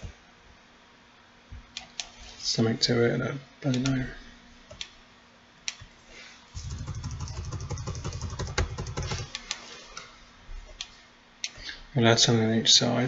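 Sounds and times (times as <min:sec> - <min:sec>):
computer mouse clicking: 0:06.6 - 0:09.6.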